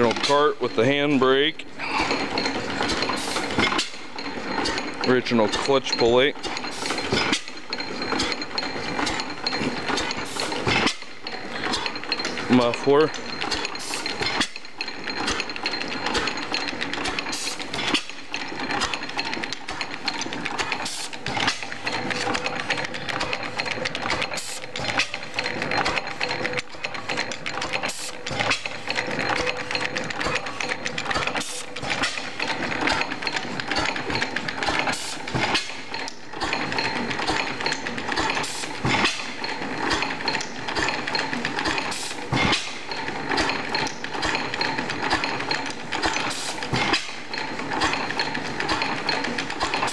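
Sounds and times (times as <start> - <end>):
engine valve gear clatter: 0.0 - 49.9.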